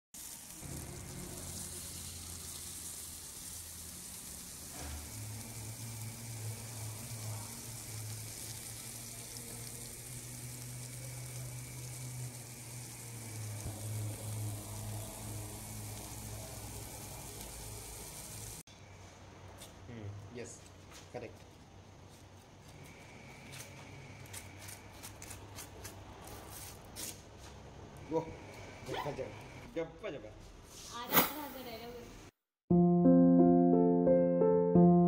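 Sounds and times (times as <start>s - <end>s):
fish sizzling on a griddle: 0.2s - 18.7s.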